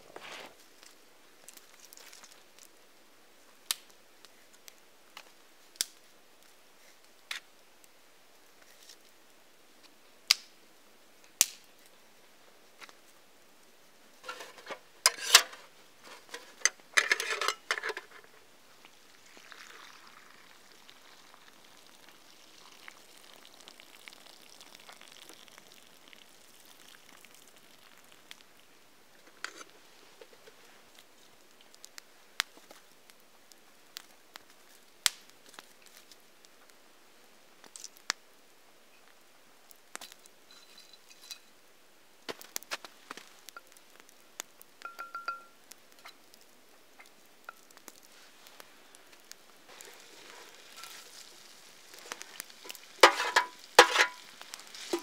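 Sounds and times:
pot crunching into snow: 0.0s - 2.7s, 14.2s - 18.4s, 19.1s - 28.4s, 47.5s - 55.0s
campfire popping and cracking: 0.4s - 2.8s, 3.5s - 12.0s, 14.1s - 36.8s, 37.5s - 41.6s, 42.2s - 55.0s.

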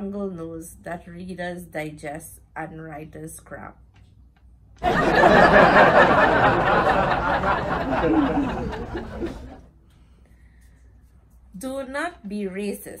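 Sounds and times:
canned audience laughter: 4.8s - 9.6s.

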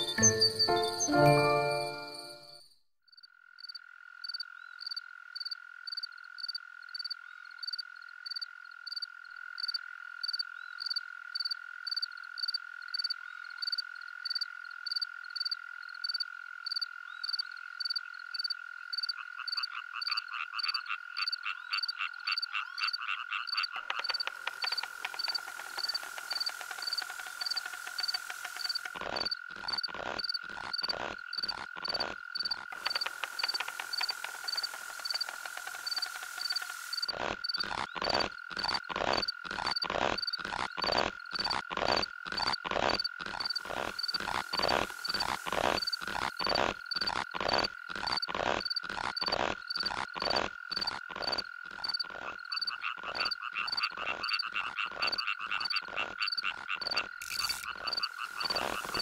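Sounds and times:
steady high-pitched tone: 0.0s - 2.6s
rapid croaking calls: 3.1s - 59.0s.

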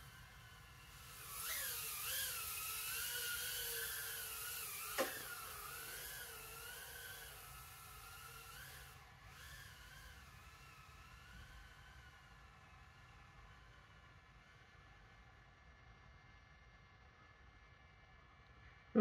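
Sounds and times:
quadcopter motors whining: 0.0s - 14.2s.

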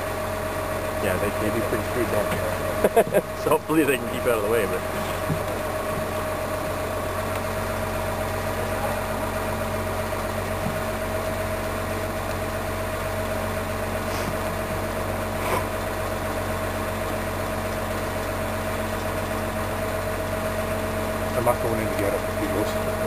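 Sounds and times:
crane diesel engine whining: 0.0s - 23.0s
faint knocks: 5.0s - 6.4s.

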